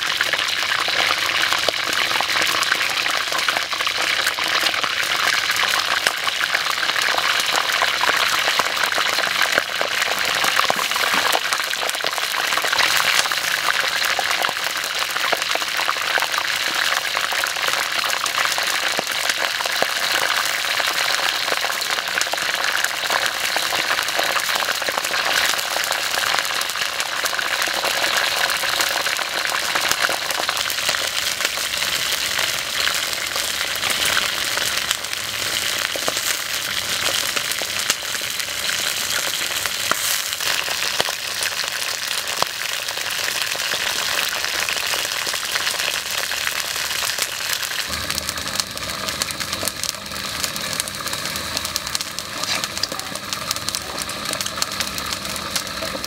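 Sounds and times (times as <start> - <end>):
oil sizzling and crackling: 0.0 - 56.0.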